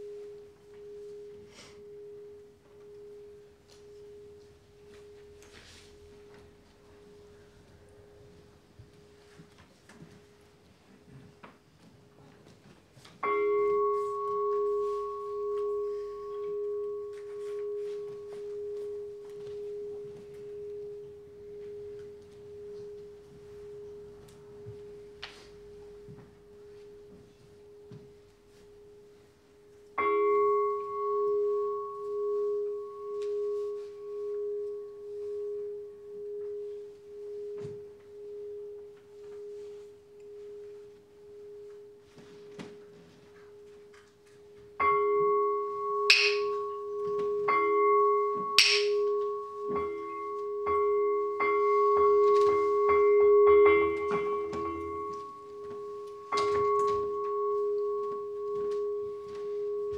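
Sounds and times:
standing bowl bell ringing: 13.2 - 59.9.

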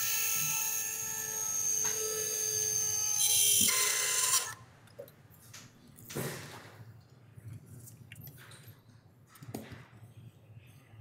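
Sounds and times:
power drill motor whine: 0.0 - 4.6.

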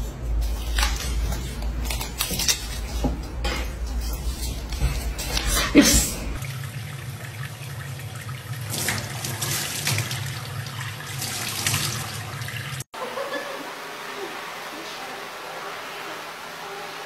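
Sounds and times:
tap water running into a sink: 5.8 - 12.9.

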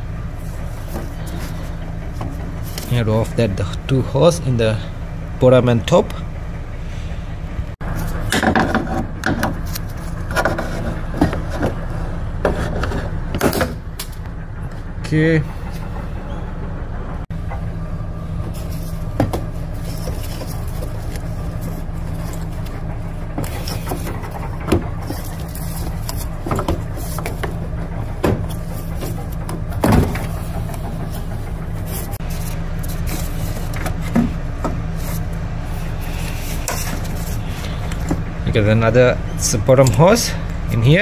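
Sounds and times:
steady low rumble: 0.0 - 41.0
knocks and clicks of tools: 19.0 - 32.2.

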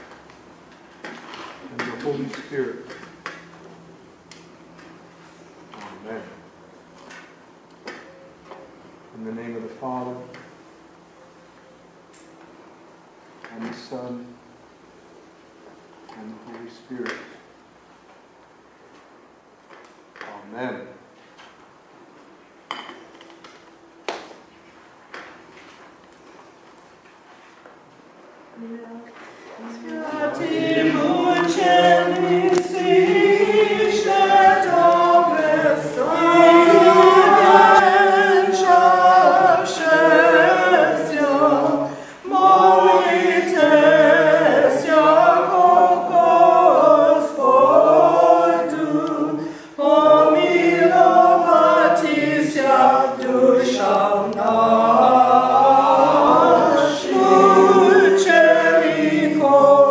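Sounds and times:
congregation singing a hymn: 29.5 - 59.9.

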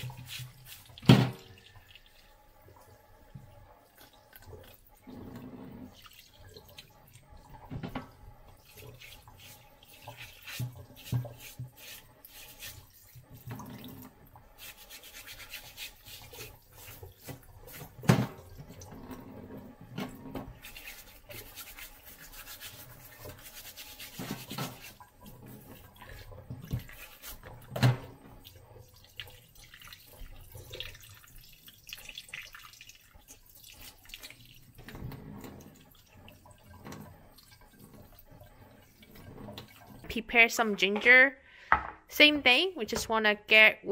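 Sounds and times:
fish rubbed and rinsed by hand: 0.0 - 2.3, 3.9 - 40.1
tap water splashing into sink: 0.0 - 21.8, 22.9 - 40.2
knocks against metal sink: 41.7 - 42.0.

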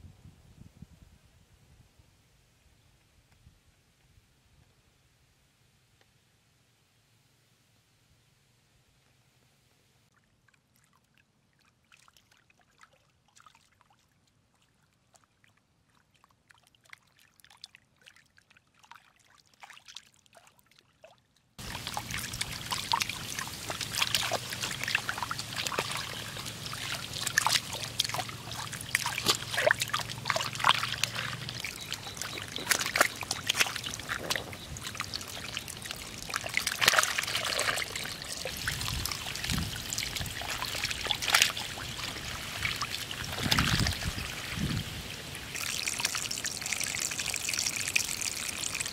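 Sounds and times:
small splashes: 10.1 - 48.9
water pouring down a channel: 18.8 - 48.9.

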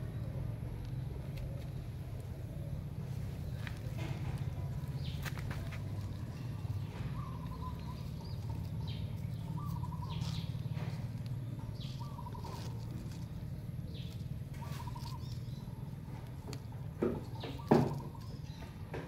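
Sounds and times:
steady low rumble: 0.0 - 17.4
trilled bird call: 6.0 - 16.2, 17.2 - 18.8.

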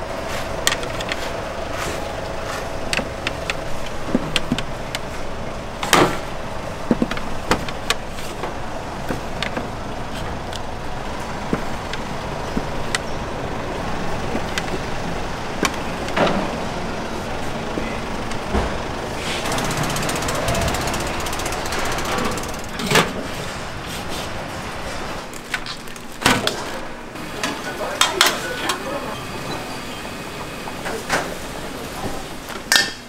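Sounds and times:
utensils clinking and knocking: 25.2 - 29.8.

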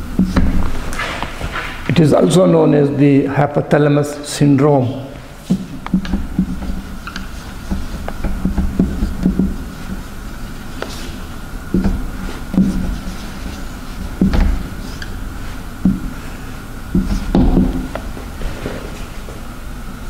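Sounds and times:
steady hum: 0.0 - 20.0
marker pen writing on whiteboard: 5.4 - 18.1.

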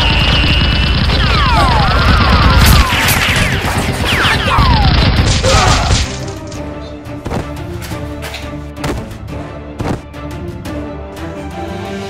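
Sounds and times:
falling whistle-like whines: 0.0 - 4.9
gunfire barrage: 0.0 - 6.4
background music: 1.2 - 12.0.

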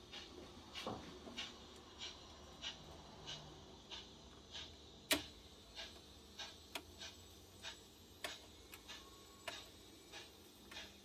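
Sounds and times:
turntable drive ticking: 0.0 - 11.0
sharp clicks: 5.1 - 5.4.

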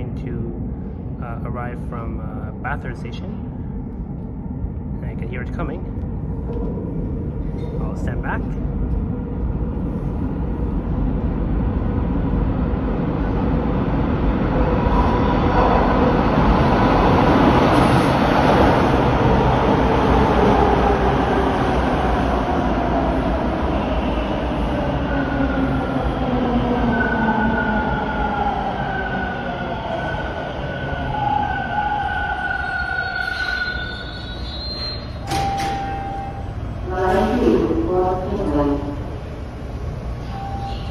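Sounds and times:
subway train rumbling on rails: 0.0 - 40.9
brake squeals: 32.6 - 35.2.

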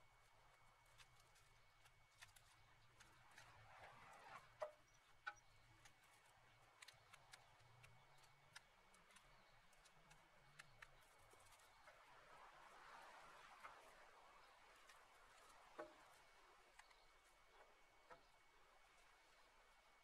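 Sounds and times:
dry branches snapping and rustling: 0.8 - 3.6, 5.8 - 11.9.

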